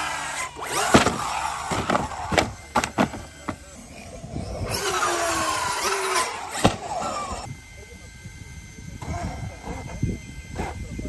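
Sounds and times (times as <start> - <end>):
two-stroke engine revving: 0.0 - 7.5.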